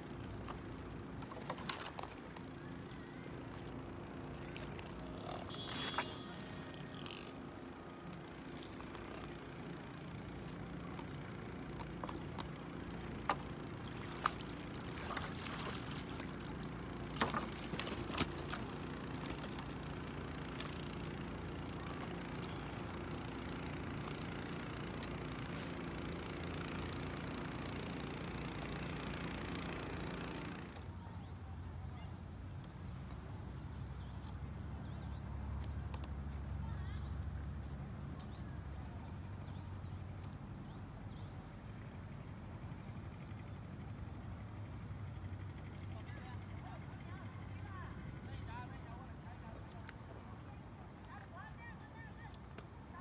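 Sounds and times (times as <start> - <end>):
boat engine droning: 0.0 - 32.2.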